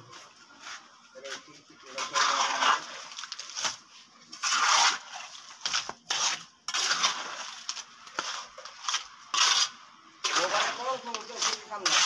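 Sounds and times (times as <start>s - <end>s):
trowel scraping wet concrete: 0.6s - 12.0s.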